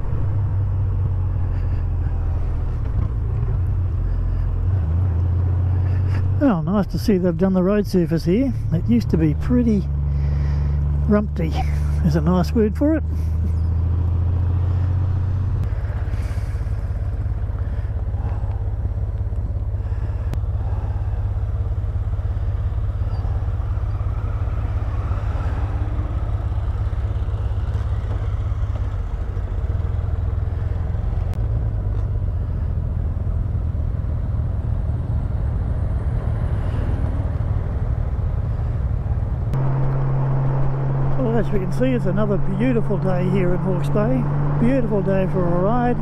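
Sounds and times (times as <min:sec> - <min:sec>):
motorcycle engine rumbling: 0:00.0 - 0:46.0
wind and road noise: 0:00.0 - 0:46.0.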